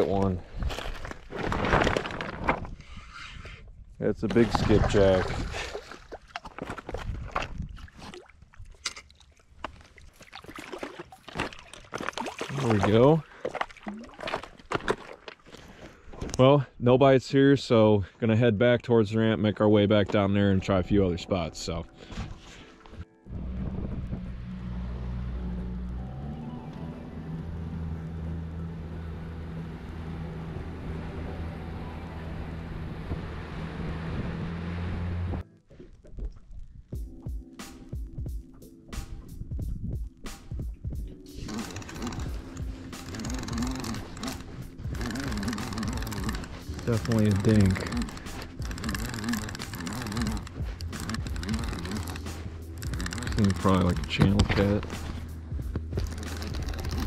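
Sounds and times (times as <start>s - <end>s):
wind rumble on microphone: 6.8s - 8.1s, 23.3s - 25.6s, 39.2s - 40.2s
fish splashing at water surface: 10.0s - 15.4s
outboard motor droning: 22.8s - 35.4s, 41.3s - 57.0s
sharp clicks: 41.4s - 57.0s.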